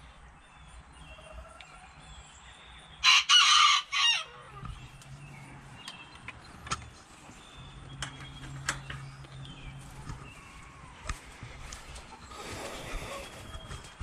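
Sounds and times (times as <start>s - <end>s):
rooster crowing: 3.0s - 4.6s.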